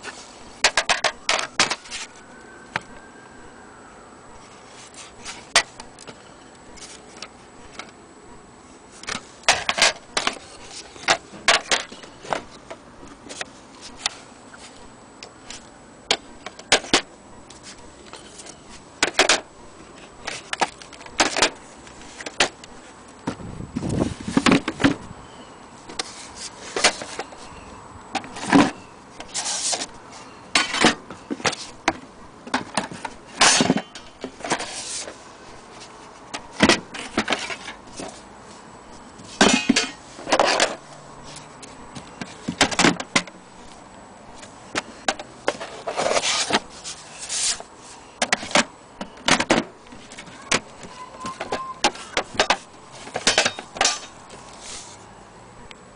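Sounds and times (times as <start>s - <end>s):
wooden holders scraping: 0.0s - 2.9s, 16.4s - 25.1s, 25.9s - 55.1s.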